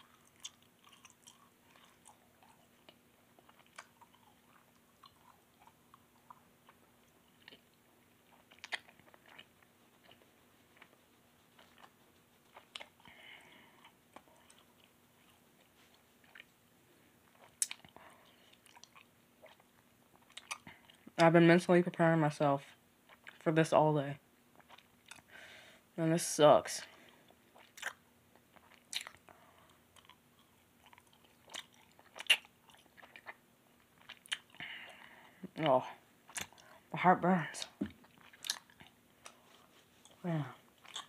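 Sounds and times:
boy chewing with wet smacks: 0:00.0 - 0:21.4, 0:23.0 - 0:23.5, 0:24.5 - 0:25.3, 0:26.8 - 0:41.0.

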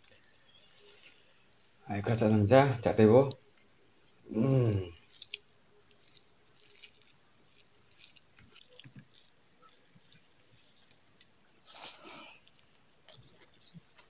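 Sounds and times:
chewing: 0:00.0 - 0:01.5, 0:04.9 - 0:14.0
fingers mixing wet food: 0:04.9 - 0:14.0.

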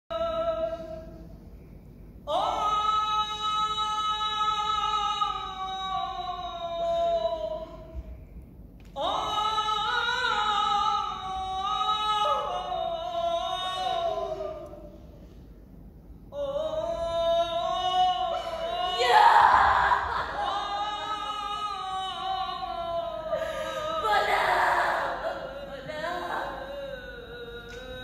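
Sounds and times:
woman singing long notes: 0:09.0 - 0:15.0, 0:16.3 - 0:28.0.

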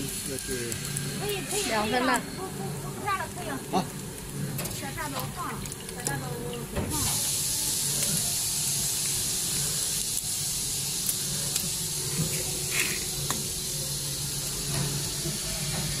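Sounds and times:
corn kernels sizzling: 0:00.0 - 0:16.0
hot oil hissing in fryer: 0:00.0 - 0:16.0
low machine hum: 0:00.0 - 0:16.0.

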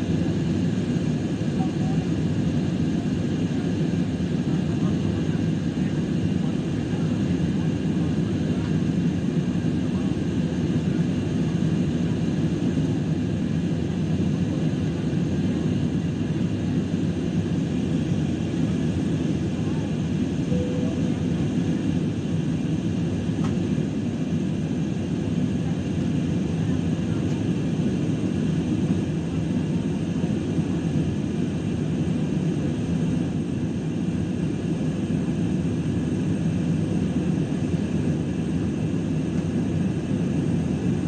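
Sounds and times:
airliner cabin low rumble: 0:00.0 - 0:41.0
faint high whine: 0:20.4 - 0:21.5.

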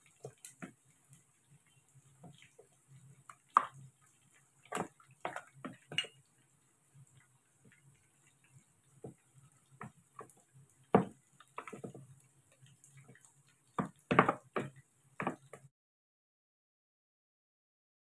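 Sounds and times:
utensil knocking and scraping bowl: 0:13.8 - 0:15.6.

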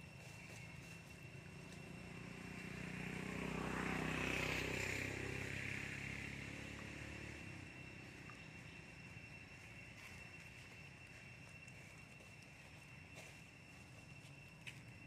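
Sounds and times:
passing vehicle engine: 0:01.3 - 0:08.9.

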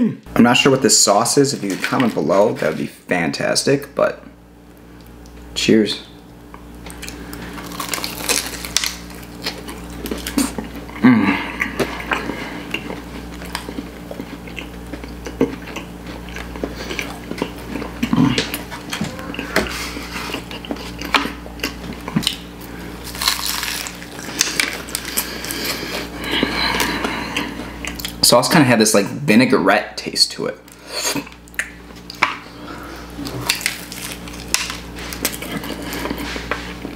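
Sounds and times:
steady low hum: 0:00.0 - 0:36.9
chewing crunchy pastry: 0:06.5 - 0:28.2, 0:30.7 - 0:36.9
person humming briefly: 0:11.0 - 0:11.8, 0:18.1 - 0:20.0.

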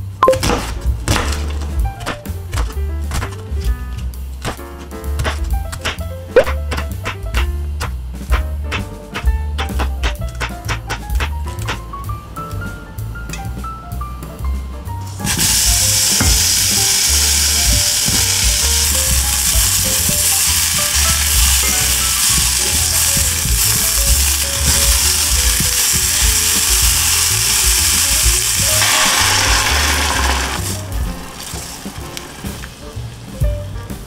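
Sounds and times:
onions sizzling in oil: 0:15.2 - 0:33.4
water pouring into pan: 0:15.3 - 0:32.7.

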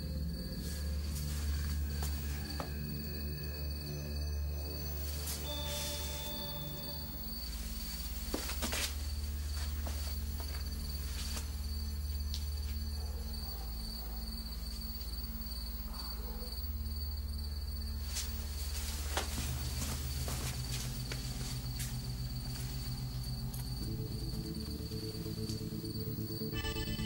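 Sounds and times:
low music drone: 0:00.0 - 0:08.3, 0:17.0 - 0:27.0
crickets chirping: 0:00.0 - 0:27.0.

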